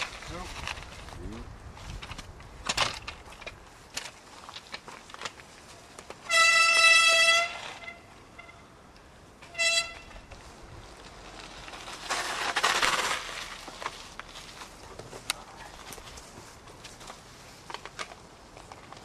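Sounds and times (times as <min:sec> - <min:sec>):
horn blasts: 0:06.3 - 0:08.7, 0:09.5 - 0:10.1.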